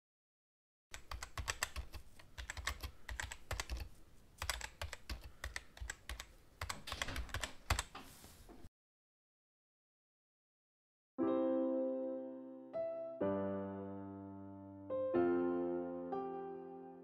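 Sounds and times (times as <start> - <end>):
keyboard typing clicks: 0.9 - 8.0.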